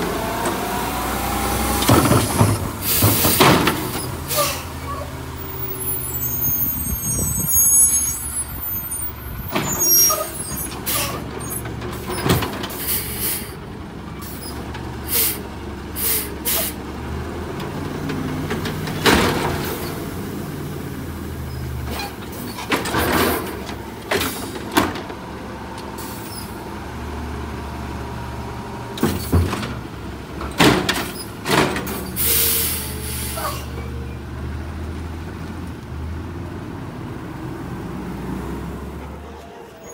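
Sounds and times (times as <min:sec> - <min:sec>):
garbage truck engine drone: 0:00.0 - 0:39.9
air brake hiss: 0:12.8 - 0:13.6, 0:15.1 - 0:15.4, 0:16.0 - 0:16.8, 0:26.0 - 0:26.6, 0:32.2 - 0:33.8.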